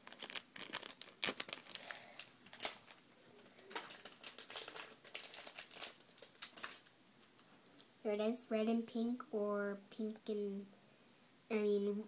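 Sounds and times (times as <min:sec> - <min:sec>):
toy packet crinkling: 0:00.0 - 0:06.9.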